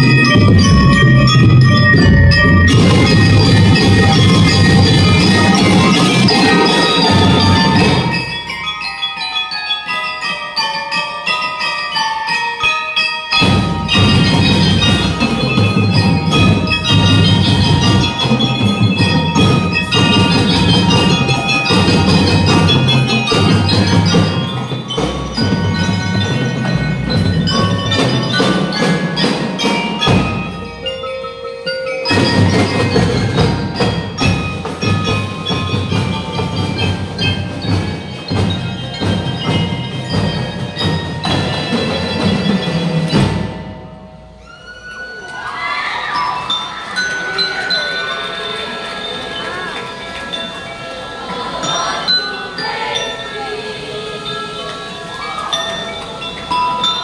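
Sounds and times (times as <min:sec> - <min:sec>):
drumline playing: 0:00.0 - 0:08.8, 0:13.3 - 0:44.4
bell lyres playing melody: 0:00.0 - 0:57.0.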